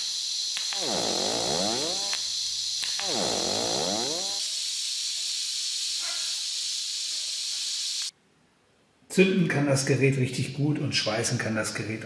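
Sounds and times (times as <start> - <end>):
sharp welder clicks: 0.0 - 1.0, 2.0 - 3.1
welding arc whine sweeping in pitch: 0.0 - 8.1
steady welding hiss: 0.0 - 8.2.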